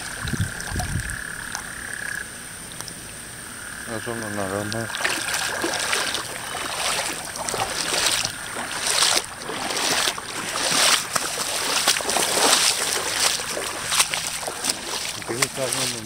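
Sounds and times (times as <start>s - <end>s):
floodwater rushing and sloshing: 0.0s - 16.0s.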